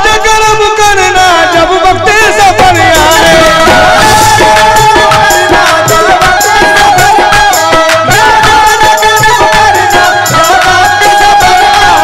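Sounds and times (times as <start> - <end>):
harmonium held notes: 0.7 - 12.0
voices singing: 1.4 - 12.0
hand drum beat: 2.5 - 12.0.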